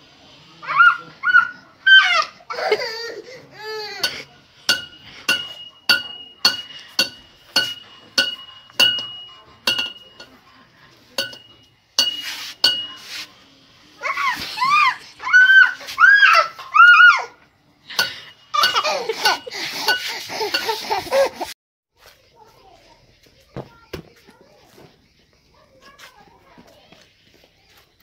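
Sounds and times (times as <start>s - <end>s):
toddler squealing cries: 0.6s - 4.0s, 14.0s - 17.4s
metal rod clinking on concrete: 4.0s - 10.4s, 11.2s - 13.2s, 17.9s - 20.9s.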